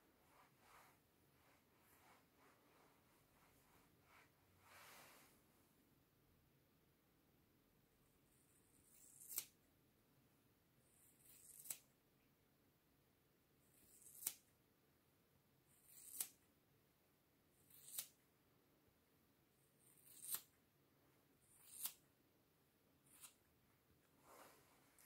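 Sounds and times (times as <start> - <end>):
scissors snipping hair: 8.8 - 9.6, 11.1 - 11.9, 13.7 - 14.5, 15.8 - 16.4, 17.7 - 18.2, 19.9 - 20.5, 21.5 - 22.0, 23.1 - 23.4.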